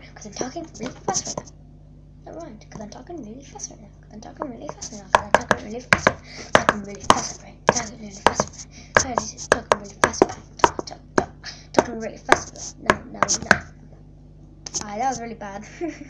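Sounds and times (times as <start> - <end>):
fingers tapping on tablet: 4.4 - 13.7.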